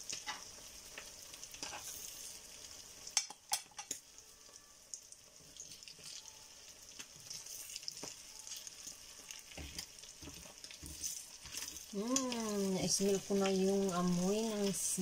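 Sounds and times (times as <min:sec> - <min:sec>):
meat sizzling in a frying pan: 0:00.0 - 0:15.0
wooden spatula stirring meat: 0:07.0 - 0:13.6.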